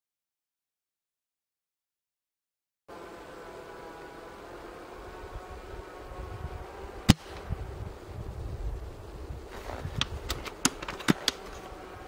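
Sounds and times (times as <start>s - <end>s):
wind buffeting microphone: 5.3s - 11.4s.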